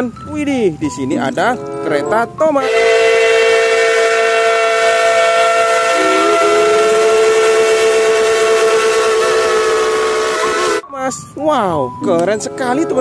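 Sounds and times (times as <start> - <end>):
steam locomotive whistle: 2.6 - 10.8.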